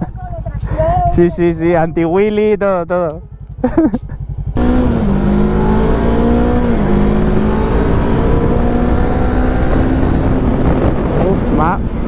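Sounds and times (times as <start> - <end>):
motorcycle engine accelerating: 0.0 - 12.0
wind rushing over microphone: 4.8 - 12.0.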